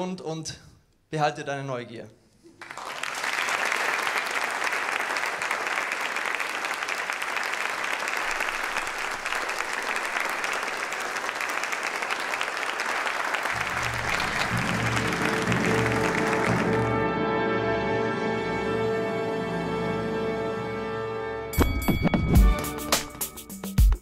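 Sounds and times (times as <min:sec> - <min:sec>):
audience applauding: 0:02.6 - 0:17.0.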